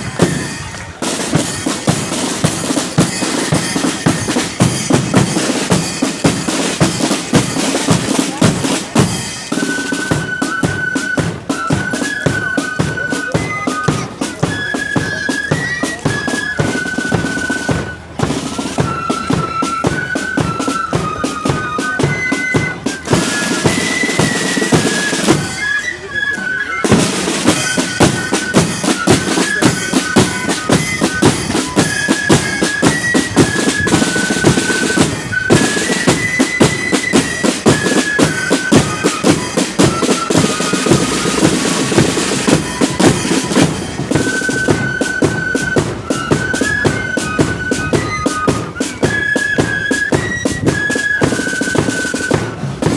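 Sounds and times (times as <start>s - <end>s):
high flute melody: 0.0s - 52.9s
rapid side drum strokes: 0.2s - 10.4s, 26.8s - 47.1s.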